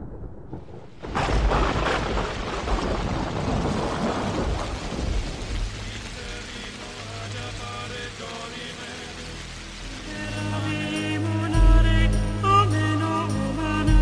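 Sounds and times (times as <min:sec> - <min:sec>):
thunder rumbling: 0:00.0 - 0:08.0
rain hissing: 0:00.5 - 0:14.0.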